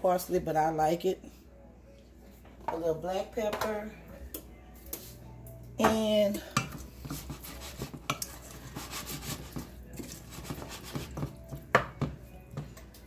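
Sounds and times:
wooden spoon stirring in metal pot: 0:06.0 - 0:13.0.

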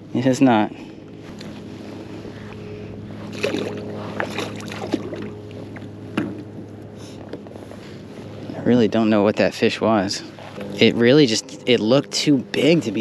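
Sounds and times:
steady low hum: 0:00.0 - 0:13.0
water lapping against kayak hull: 0:02.2 - 0:06.2.

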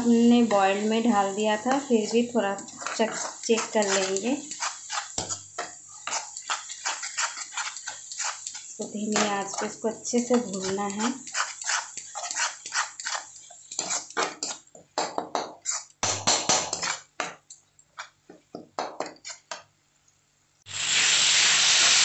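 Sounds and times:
masala sizzling: 0:00.0 - 0:18.2, 0:20.6 - 0:22.0
ladle scraping an iron pan: 0:02.6 - 0:14.6.

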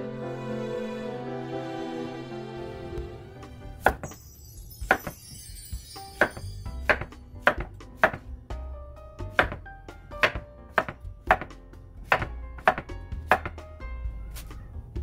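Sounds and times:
knife knocking on wooden board: 0:09.4 - 0:09.6, 0:10.2 - 0:13.6.

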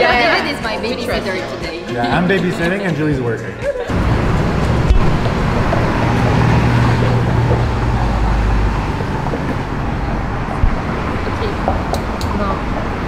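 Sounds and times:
city street traffic: 0:00.0 - 0:13.0
vehicle engine low rumble: 0:03.9 - 0:13.0.

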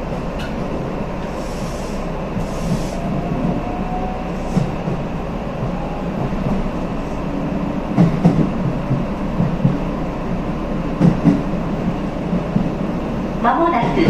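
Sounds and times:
train rumble: 0:00.0 - 0:14.0.

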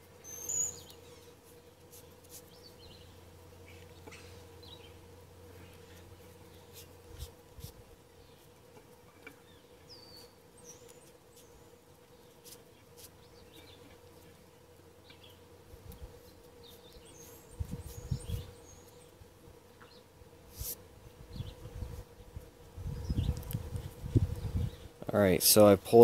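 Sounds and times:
small birds chirping: 0:00.0 - 0:07.4, 0:08.0 - 0:20.2, 0:21.1 - 0:25.0
faint steady hum: 0:00.0 - 0:26.0.

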